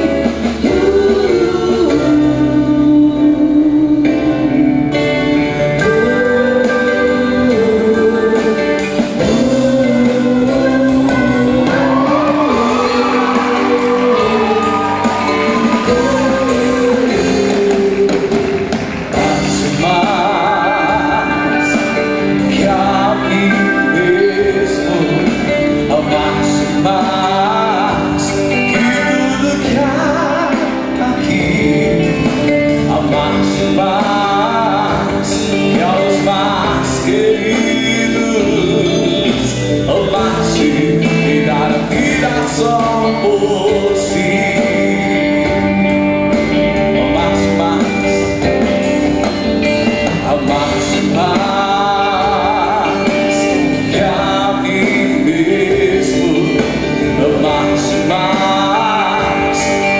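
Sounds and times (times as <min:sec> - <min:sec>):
instrumental accompaniment: 0:00.0 - 0:59.9
man singing into a microphone: 0:00.0 - 0:59.9
women's backing vocals: 0:09.4 - 0:25.2.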